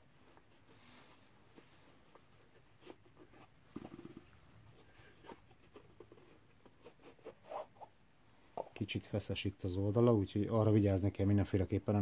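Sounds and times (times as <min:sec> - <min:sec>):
soft handling clicks and rustles: 0:00.1 - 0:07.4.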